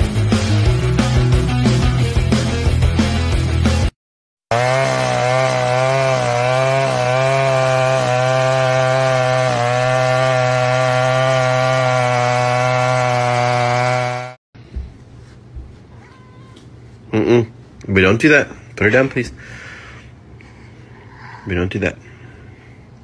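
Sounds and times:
chainsaw-like motor drone: 4.5s - 14.4s.

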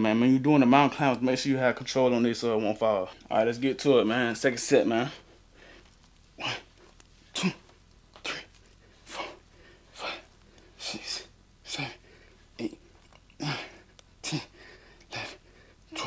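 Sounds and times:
man breathing out hard with grunts: 13.4s - 16.0s.

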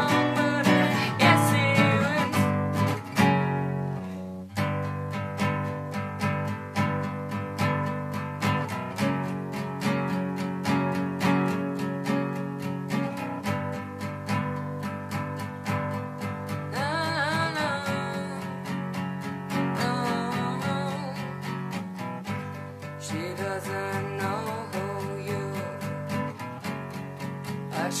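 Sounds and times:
wordless vocal line: 0.0s - 2.6s
acoustic guitar strumming: 0.0s - 28.0s.

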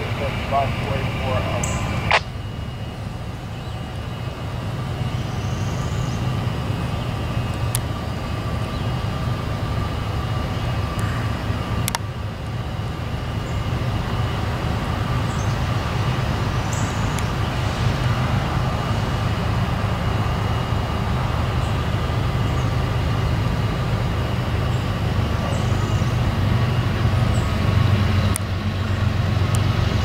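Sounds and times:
locomotive engine rumble: 0.0s - 30.0s
sharp clicks: 1.6s - 2.3s.

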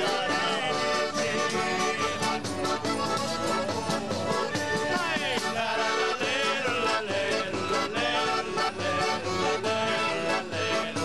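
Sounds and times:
man singing: 0.0s - 2.4s, 3.3s - 11.0s
frame drum with jingles: 0.0s - 5.7s
accordion playing a tune: 0.0s - 11.0s
strummed acoustic guitar: 0.0s - 11.0s.

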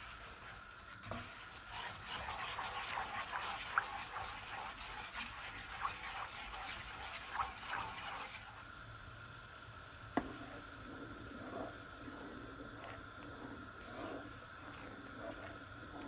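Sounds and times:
syrup bubbling and popping: 9.8s - 16.0s.

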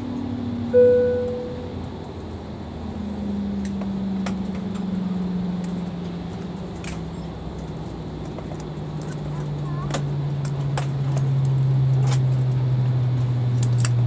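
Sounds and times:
jet engines humming low: 0.0s - 14.0s.

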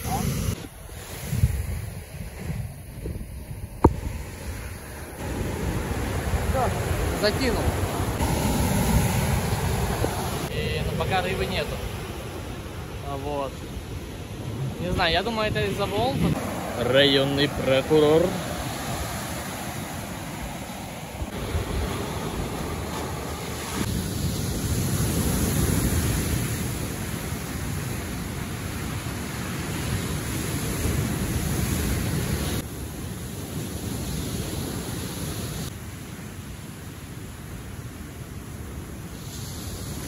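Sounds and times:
wind buffeting microphone: 0.0s - 10.6s
ocean surf breaking on beach: 0.0s - 40.0s.

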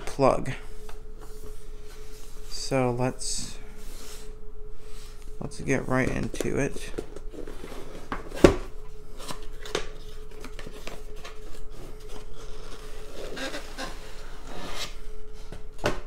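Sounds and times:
faint steady hum: 0.0s - 16.0s
cardboard scraping and rubbing: 7.3s - 8.4s, 9.2s - 15.0s.

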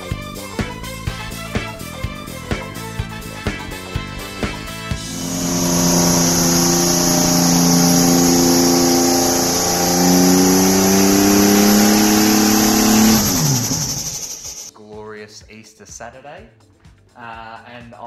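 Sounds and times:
engine revving high: 4.9s - 14.7s
tyres spinning: 5.0s - 14.7s.

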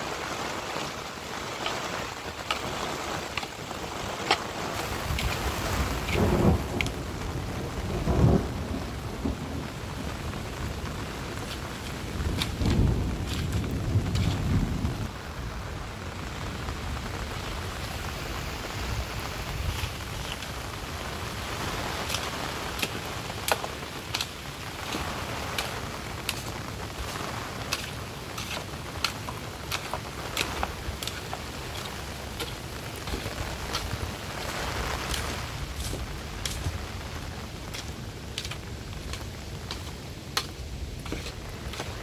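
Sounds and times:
heavy rain: 0.0s - 42.0s
raindrops striking close by: 0.0s - 42.0s.

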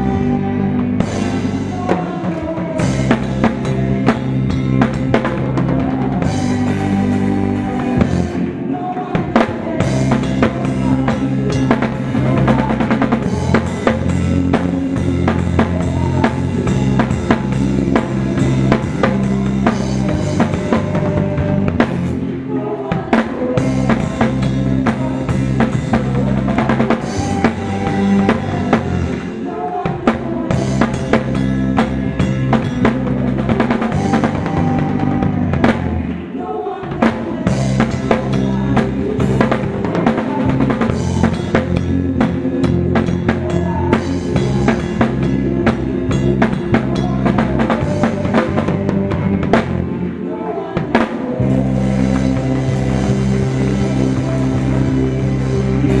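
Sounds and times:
bass and guitar chords: 0.0s - 56.0s
drum kit: 0.0s - 56.0s.

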